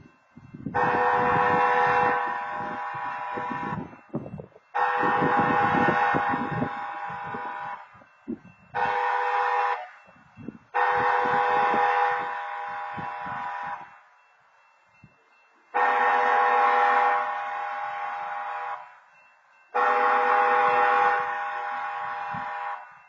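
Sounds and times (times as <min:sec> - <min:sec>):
locomotive air horn blasts: 0:00.6 - 0:04.0, 0:04.7 - 0:08.1, 0:08.7 - 0:10.1, 0:10.7 - 0:14.0, 0:15.7 - 0:19.0, 0:19.7 - 0:23.0.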